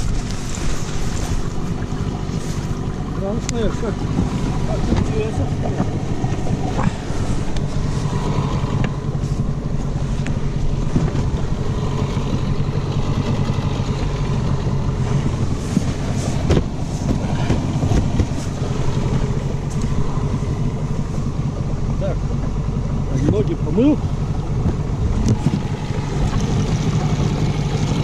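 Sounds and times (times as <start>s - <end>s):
outboard motor running: 0.0s - 28.0s.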